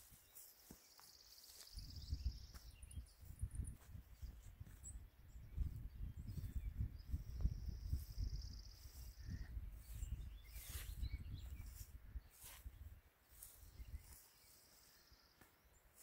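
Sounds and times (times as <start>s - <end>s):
wind buffeting microphone: 1.8s - 13.0s.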